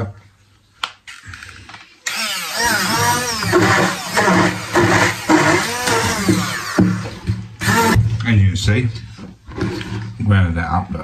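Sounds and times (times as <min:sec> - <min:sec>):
stick blender chopping: 0:02.2 - 0:08.0.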